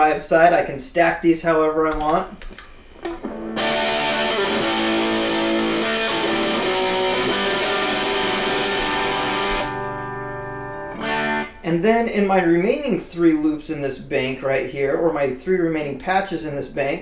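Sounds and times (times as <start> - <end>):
overdriven electric guitar chords: 2.3 - 11.6.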